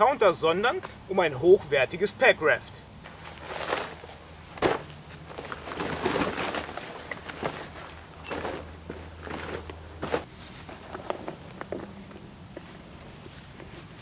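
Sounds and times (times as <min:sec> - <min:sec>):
nylon fabric rustling and crinkling: 0:03.1 - 0:11.0.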